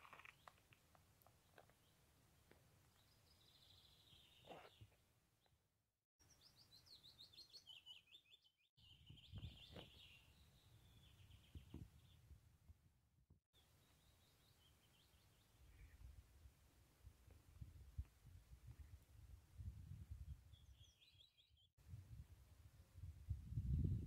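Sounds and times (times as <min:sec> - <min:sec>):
songbird trilling and chirping: 0:06.3 - 0:12.2
low wind rumble: 0:15.7 - 0:20.8, 0:21.8 - 0:24.0.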